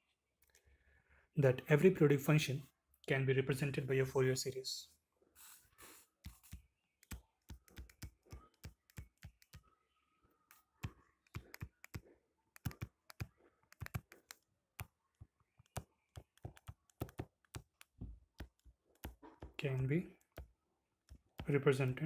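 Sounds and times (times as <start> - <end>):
stylus tapping on touchscreen: 6.2 - 9.7, 10.5 - 21.6.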